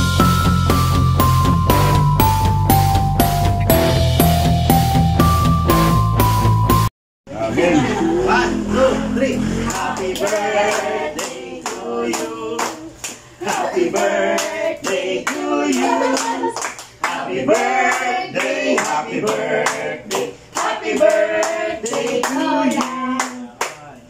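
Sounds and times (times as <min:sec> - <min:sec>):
group singing together: 0:07.3 - 0:23.5.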